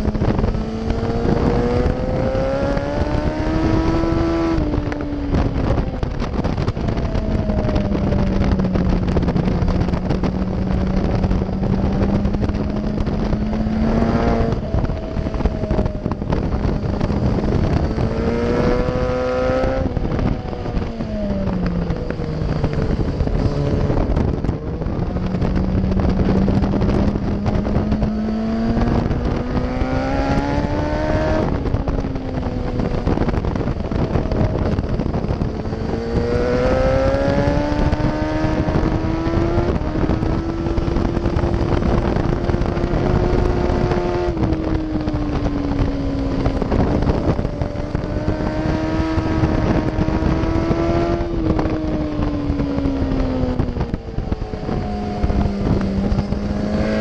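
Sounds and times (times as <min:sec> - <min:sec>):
motorcycle engine revving: 0:00.0 - 0:57.0
wind rush over microphone: 0:00.0 - 0:57.0.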